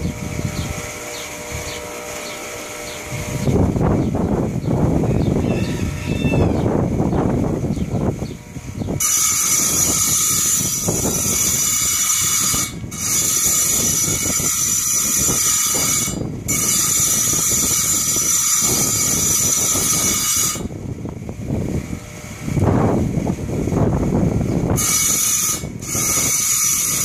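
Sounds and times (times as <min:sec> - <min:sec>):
tile saw grinding rock: 0:09.0 - 0:20.7, 0:24.8 - 0:27.0.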